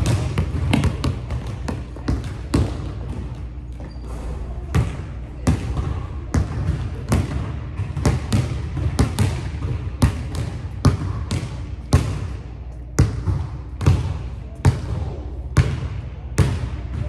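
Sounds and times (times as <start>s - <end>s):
basketball bouncing on hardwood floor: 0.0s - 4.0s, 4.7s - 12.3s.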